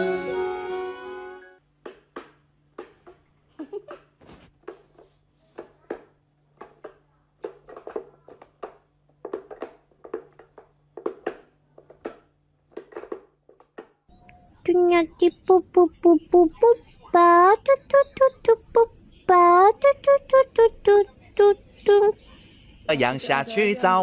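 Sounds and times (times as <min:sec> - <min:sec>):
wooden toy clicks and knocks: 0:05.9 - 0:13.9.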